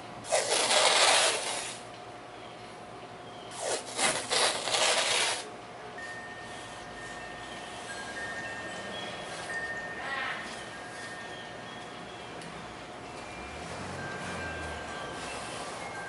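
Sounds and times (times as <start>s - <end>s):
tape ripping off roll: 0.3s - 1.8s, 3.5s - 5.4s.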